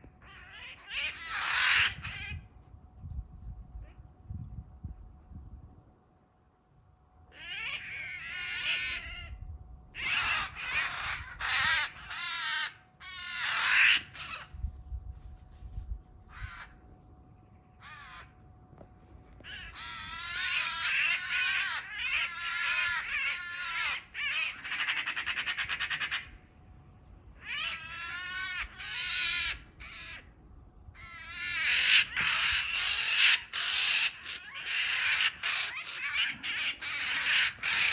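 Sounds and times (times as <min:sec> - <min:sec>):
magpie distress calls: 0:00.2 - 0:02.5, 0:07.3 - 0:09.4, 0:10.0 - 0:14.6, 0:16.3 - 0:16.9, 0:17.8 - 0:18.4, 0:19.4 - 0:26.4, 0:27.4 - 0:30.3, 0:31.0 - 0:37.9.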